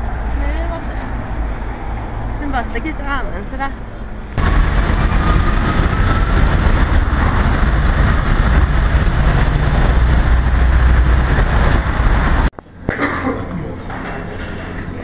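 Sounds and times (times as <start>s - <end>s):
heavy road traffic rumble: 0.0s - 15.0s
faint rising whine: 4.4s - 12.5s.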